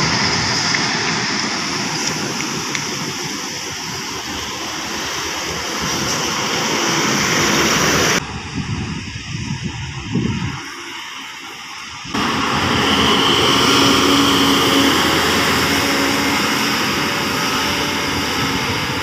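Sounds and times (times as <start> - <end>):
bus diesel engine under load: 0.0 - 19.0
steady high whine: 0.0 - 19.0
low hum: 12.1 - 19.0.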